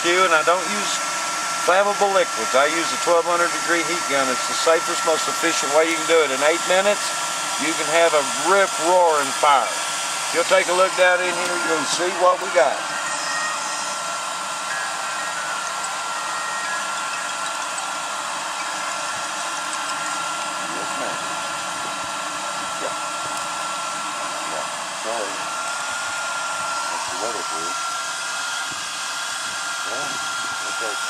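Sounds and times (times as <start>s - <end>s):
heat gun blowing air: 0.0s - 14.7s.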